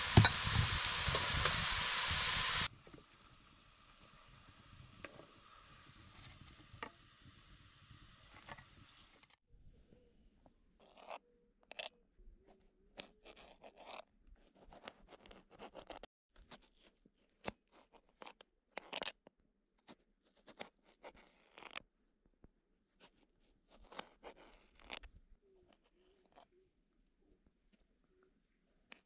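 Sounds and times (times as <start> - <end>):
knife knocking on cutting board: 0.2 - 0.6.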